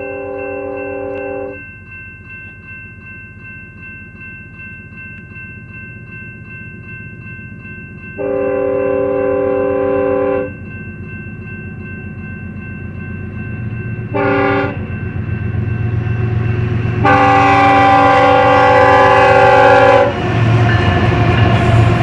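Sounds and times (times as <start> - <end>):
locomotive air horn: 0.0 - 1.6, 8.2 - 10.5, 14.1 - 14.8, 17.0 - 20.2
train wheels rumbling: 5.2 - 22.0.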